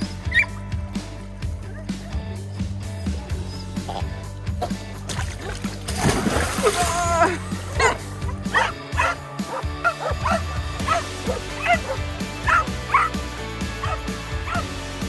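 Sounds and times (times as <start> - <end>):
background music: 0.0 - 15.0
dogs barking: 1.4 - 4.9, 7.3 - 14.8.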